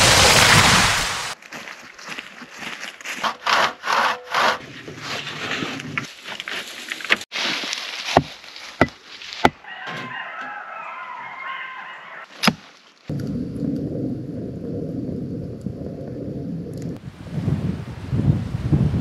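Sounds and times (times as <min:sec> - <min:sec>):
hand saw cutting wood: 0:03.0 - 0:06.1.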